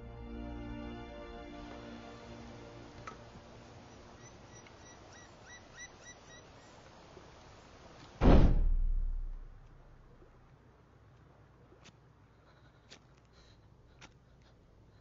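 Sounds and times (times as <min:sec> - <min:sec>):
faint chirps: 0:03.1 - 0:06.9
deep boom: 0:08.2 - 0:09.7.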